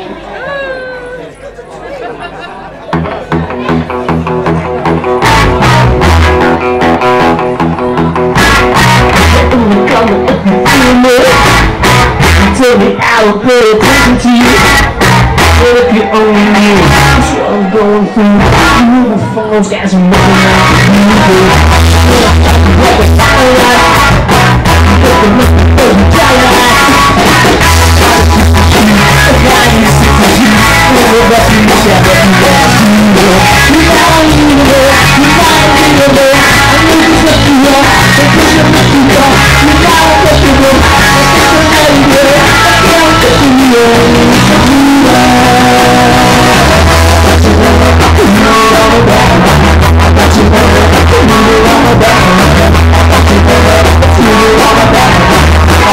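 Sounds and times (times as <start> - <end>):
live rock band playing: 2.9 - 55.9
person singing: 3.3 - 55.9.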